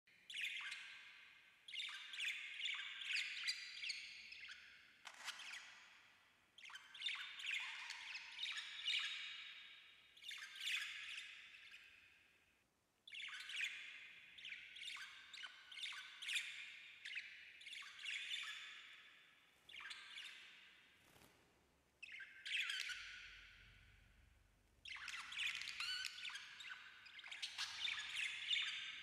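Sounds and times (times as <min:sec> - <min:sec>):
budgerigars chirping: 0:22.2 - 0:23.5, 0:24.9 - 0:29.0.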